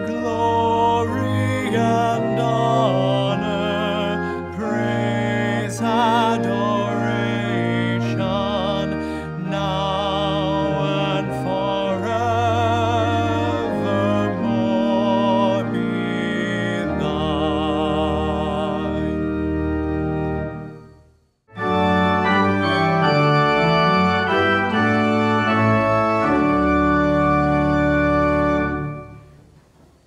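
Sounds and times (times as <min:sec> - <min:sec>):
man singing a hymn with vibrato: 0:00.0 - 0:19.8
organ chords: 0:00.0 - 0:29.6.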